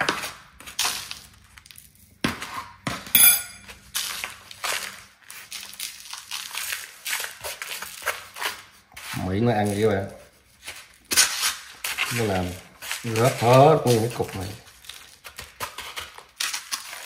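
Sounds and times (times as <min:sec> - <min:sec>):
sharp ringing clink: 0:03.2 - 0:03.7.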